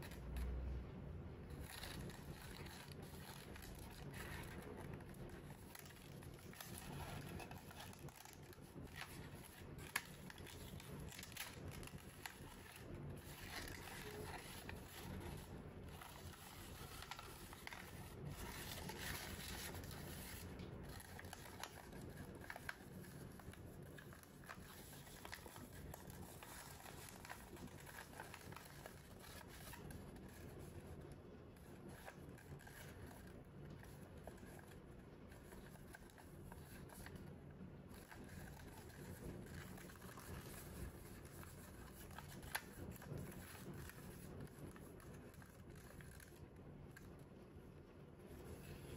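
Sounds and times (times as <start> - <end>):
paper rustling and folding: 1.5 - 48.9
paper taps and creasing: 1.6 - 37.2, 37.8 - 47.3.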